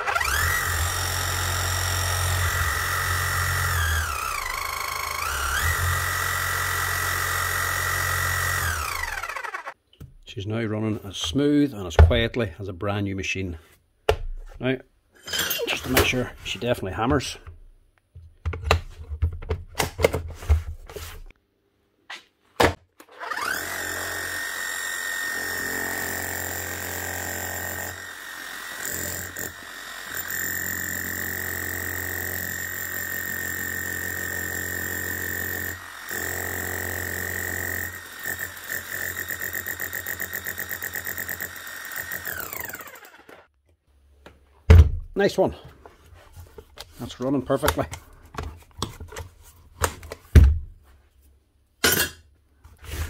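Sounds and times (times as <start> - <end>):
power hammer motor whine: 0.0 - 9.8, 23.2 - 43.5.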